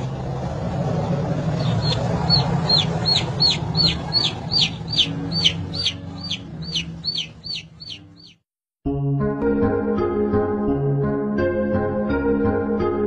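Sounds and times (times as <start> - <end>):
low hum: 0.0 - 8.3
chick peeping: 1.5 - 8.4.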